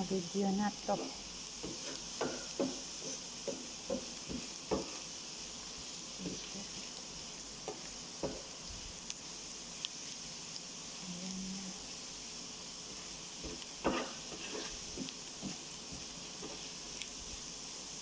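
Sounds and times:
onions sizzling in oil: 0.0 - 18.0
spatula scraping a pan: 0.8 - 5.0, 12.9 - 16.7.

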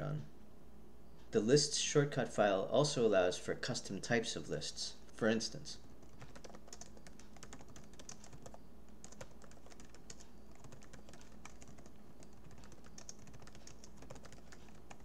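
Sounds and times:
typing on computer keyboard: 5.8 - 15.0.

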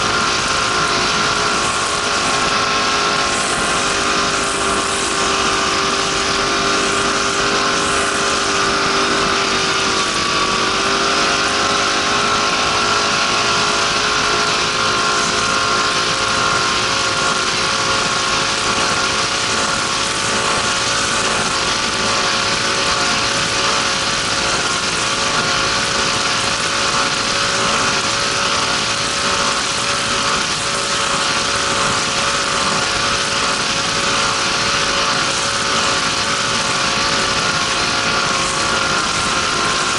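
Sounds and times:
boat engine at high revs: 0.0 - 39.9
rush of wind and water: 0.0 - 39.9.

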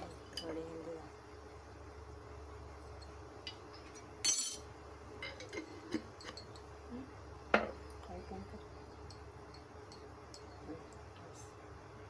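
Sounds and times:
spoon and glass jars clinking: 3.0 - 6.7.

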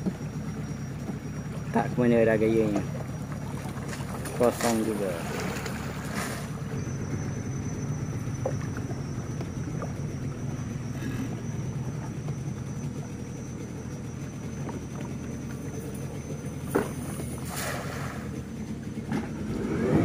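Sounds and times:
outboard engine idling: 0.0 - 20.0
net splashing into water: 17.4 - 18.3.

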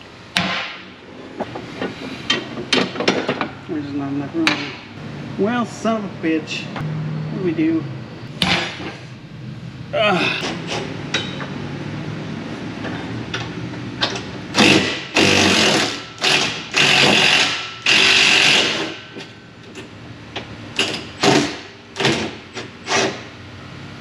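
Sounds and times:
hand-held power tool bursts: 14.6 - 19.0.

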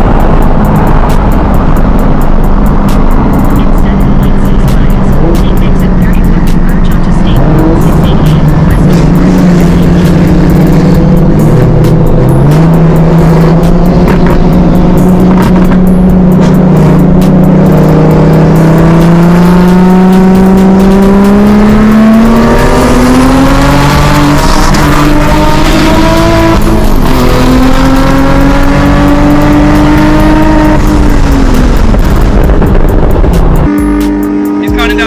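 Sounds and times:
car engine accelerating hard: 0.0 - 35.0.

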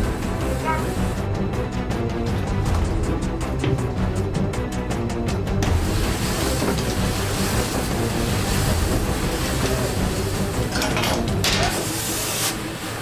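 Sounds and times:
music: 0.0 - 13.0
even hiss: 5.8 - 10.8, 11.6 - 13.0.

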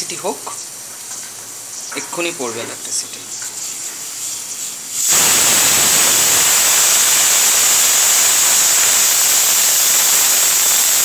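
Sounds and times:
pressure cooker whistling: 5.0 - 11.0.

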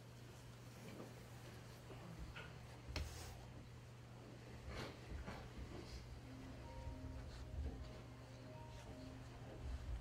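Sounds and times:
soft slow background music: 4.6 - 10.0.

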